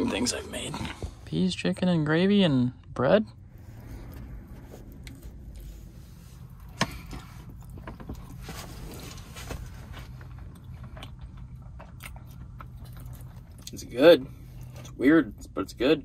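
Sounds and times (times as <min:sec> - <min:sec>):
low hum: 0:00.0 - 0:15.8.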